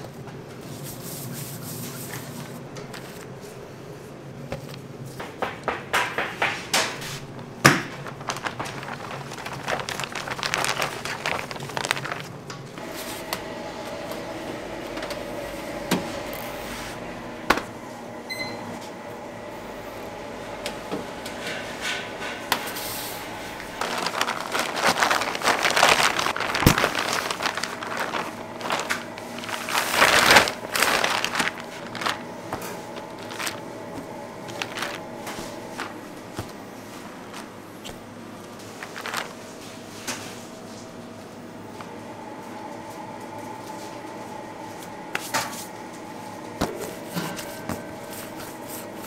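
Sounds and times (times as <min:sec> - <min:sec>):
rustling handling noise: 0:07.0 - 0:13.3, 0:22.7 - 0:41.0
machine humming: 0:07.4 - 0:39.3.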